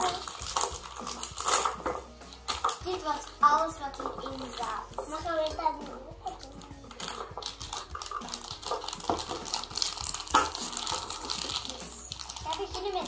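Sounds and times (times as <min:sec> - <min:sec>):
plastic packaging crinkling: 0:00.0 - 0:02.9, 0:06.4 - 0:13.0.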